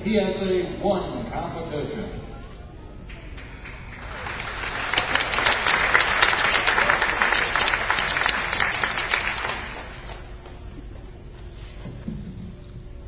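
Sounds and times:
audience applause: 0:03.4 - 0:10.3.

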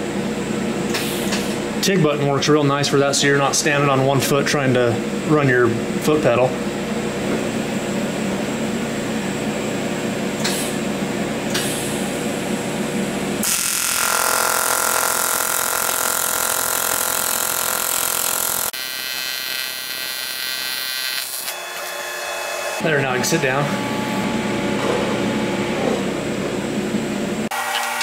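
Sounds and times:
steady low hum: 0:00.0 - 0:13.4, 0:22.8 - 0:27.5
welding arc buzzing: 0:13.4 - 0:22.8, 0:27.5 - 0:28.0.

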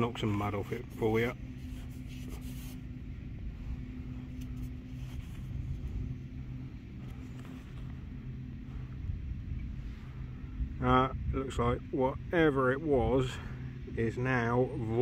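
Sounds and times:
gloved hands rustling: 0:00.0 - 0:09.0
low mechanical hum: 0:00.0 - 0:15.0.

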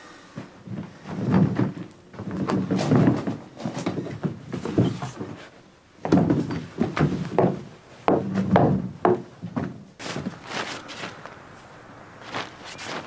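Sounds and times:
wheelbarrow knocks: 0:00.7 - 0:05.4
wheelbarrow on gravel: 0:10.0 - 0:11.4, 0:12.2 - 0:13.0
footsteps crunching on gravel: 0:10.0 - 0:13.0.

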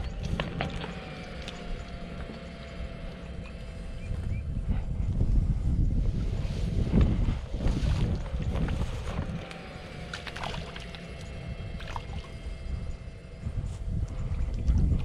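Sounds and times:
water sloshing and splashing: 0:00.0 - 0:03.8, 0:06.3 - 0:12.8.

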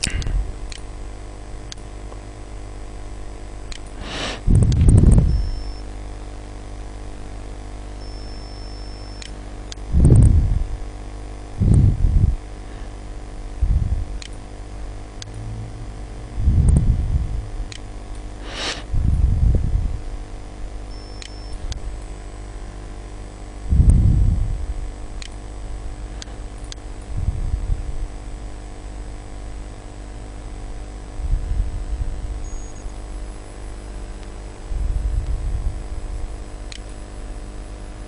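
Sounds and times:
electrical hum: 0:00.0 - 0:38.0
faint fan noise: 0:00.0 - 0:38.0
muffled rumbles on microphone: 0:04.4 - 0:05.5, 0:09.9 - 0:10.9, 0:11.5 - 0:12.5, 0:13.5 - 0:14.2, 0:15.4 - 0:17.7, 0:18.9 - 0:20.4, 0:23.6 - 0:25.0, 0:27.1 - 0:29.3, 0:31.1 - 0:32.4, 0:34.4 - 0:36.2.

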